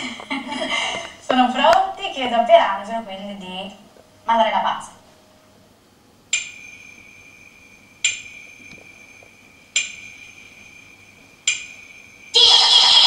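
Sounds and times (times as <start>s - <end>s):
bell-like tones: 6.4s - 12.4s.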